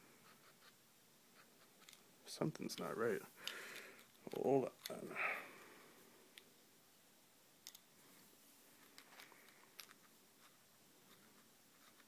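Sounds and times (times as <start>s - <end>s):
small metal parts clicking: 8.9s - 10.1s.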